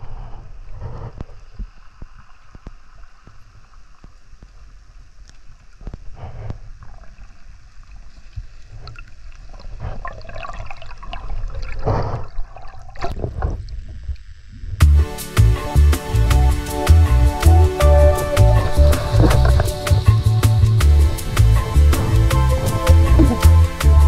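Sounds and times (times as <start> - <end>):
underwater gurgling and sloshing: 0.0 - 14.8, 18.6 - 20.2.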